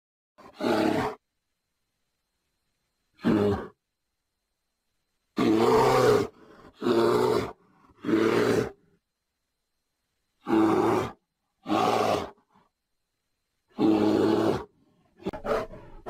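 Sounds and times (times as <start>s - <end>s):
bear roaring: 0.4s - 1.2s, 3.2s - 3.8s, 5.4s - 8.8s, 10.4s - 12.5s, 13.7s - 16.0s.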